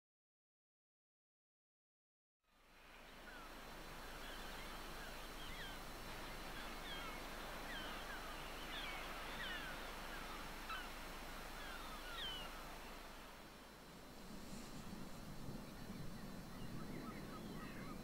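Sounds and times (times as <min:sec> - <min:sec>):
steady background hiss: 0:02.5 - 0:18.0
gulls calling: 0:03.2 - 0:13.5, 0:14.9 - 0:18.0.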